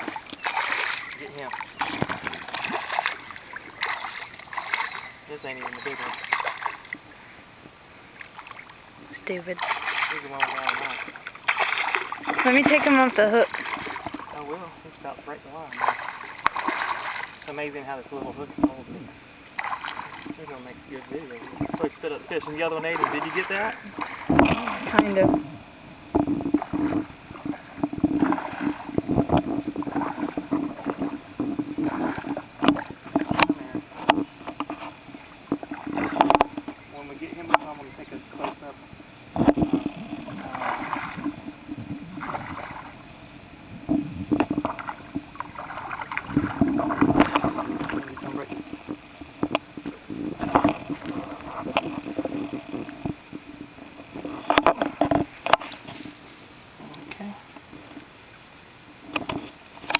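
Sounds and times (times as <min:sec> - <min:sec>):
fish splashing at water surface: 0:00.0 - 0:07.0, 0:09.5 - 0:14.6, 0:15.7 - 0:17.6, 0:19.5 - 0:20.4, 0:26.2 - 0:36.7, 0:39.4 - 0:43.0, 0:44.3 - 0:53.1
water dripping: 0:00.0 - 0:07.0.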